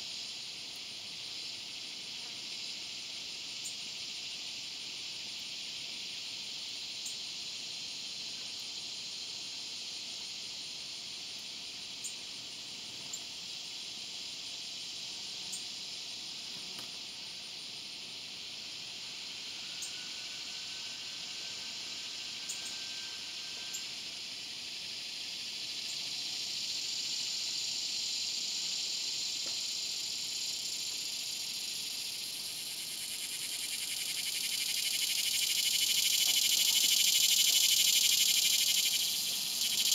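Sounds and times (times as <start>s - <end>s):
cicada buzzing: 0.0s - 39.9s.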